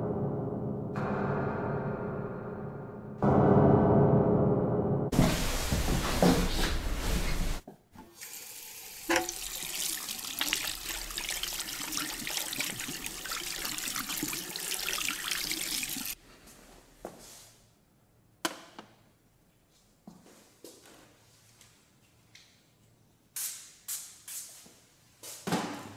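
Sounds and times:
tap water running into basin: 8.0s - 16.2s.

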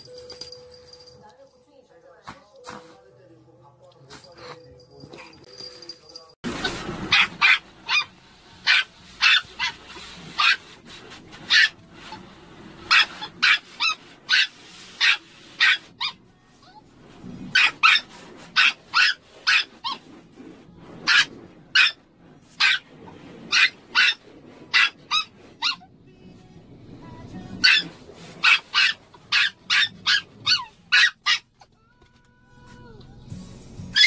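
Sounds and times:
small dog yapping: 7.1s - 8.1s, 8.7s - 9.8s, 11.5s - 11.7s, 12.9s - 16.2s, 17.6s - 20.0s, 22.6s - 22.8s, 23.5s - 25.8s, 27.6s - 31.5s.

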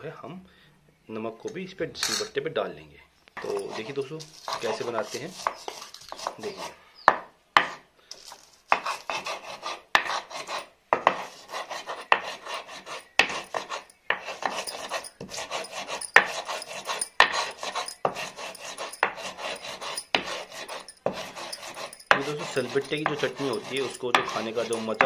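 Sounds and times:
stone scraping on stone: 3.4s - 6.8s, 8.7s - 25.0s.

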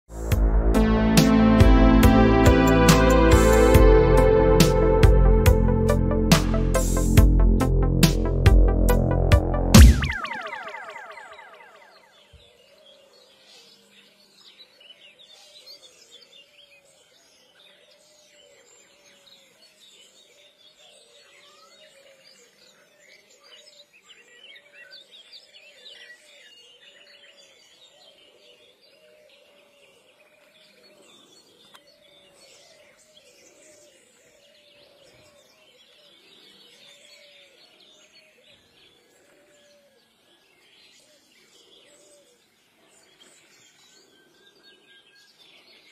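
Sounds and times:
low repeated bird call: 0.2s - 12.4s
small birds chirping and twittering: 10.1s - 45.9s.

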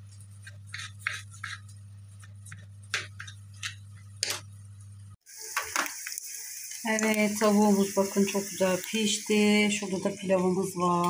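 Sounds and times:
chicken frying in a pan: 5.2s - 11.0s.

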